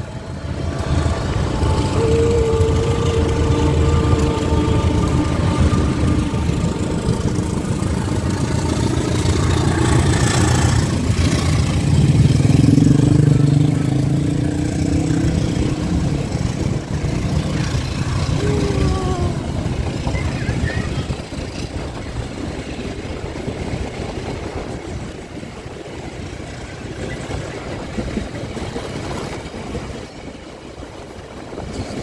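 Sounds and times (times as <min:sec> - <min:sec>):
diesel engine drone: 0:00.0 - 0:21.2
train coaches rumbling on track: 0:00.0 - 0:32.0.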